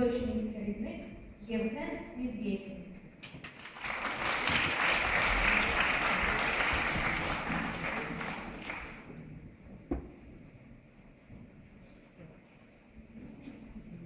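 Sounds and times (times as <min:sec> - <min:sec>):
audience applauding: 0:03.4 - 0:09.2.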